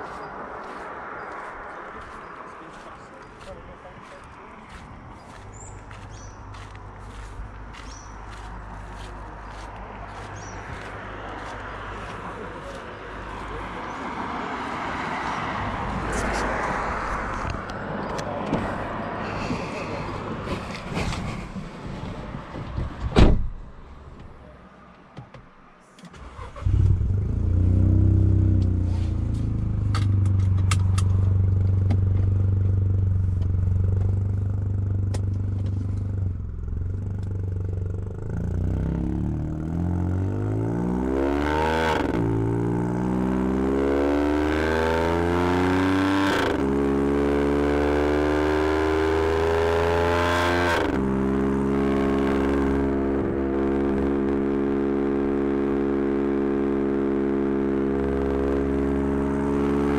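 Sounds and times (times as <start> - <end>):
car engine idling and accelerating: 0.0 - 59.9
car door shutting: 22.3 - 23.6.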